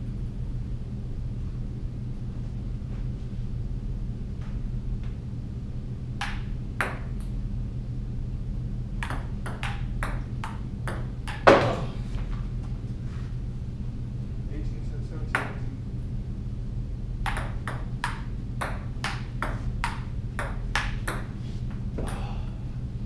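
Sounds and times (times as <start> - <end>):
table tennis ball clicking: 9.0 - 11.5, 17.2 - 21.2.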